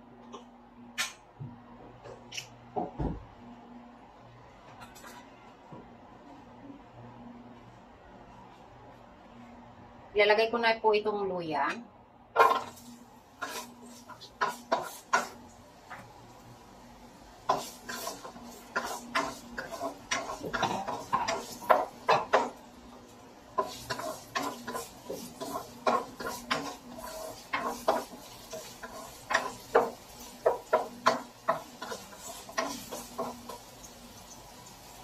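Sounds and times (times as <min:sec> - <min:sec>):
spatula scraping a wok: 0:12.4 - 0:15.4, 0:17.4 - 0:22.6, 0:23.5 - 0:33.7.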